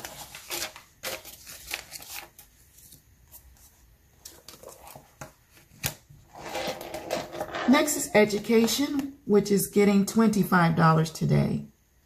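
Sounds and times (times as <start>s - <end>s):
paper and plastic rustling: 0.0s - 7.3s.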